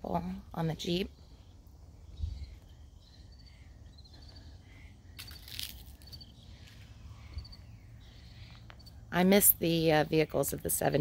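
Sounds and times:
insects chirping in trills: 0:00.9 - 0:09.3.

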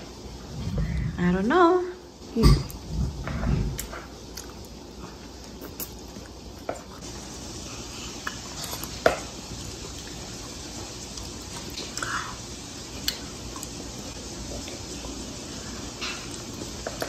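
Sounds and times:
steady low hiss: 0:00.0 - 0:17.0.

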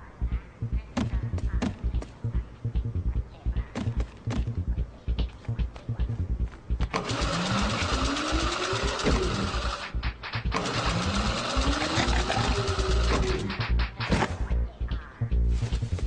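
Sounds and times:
rapid low thumping: 0:00.2 - 0:07.7, 0:09.1 - 0:16.0
treadmill motor whirring: 0:06.9 - 0:13.8.

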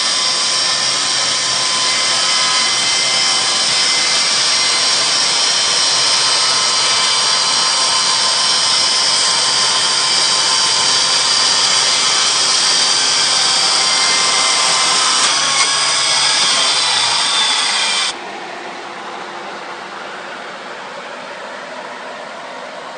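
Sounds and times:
electric chainsaw cutting log: 0:00.0 - 0:18.2.

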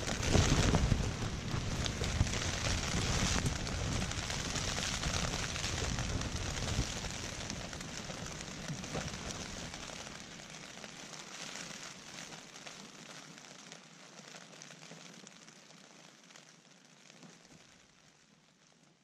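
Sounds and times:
low wind rumble: 0:00.0 - 0:10.4
rain pattering on a tent: 0:00.0 - 0:19.0.

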